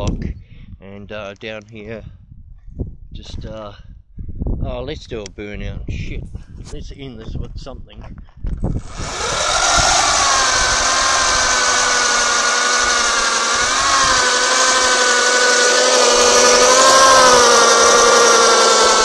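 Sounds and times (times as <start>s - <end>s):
electric motor whining: 8.7s - 19.0s.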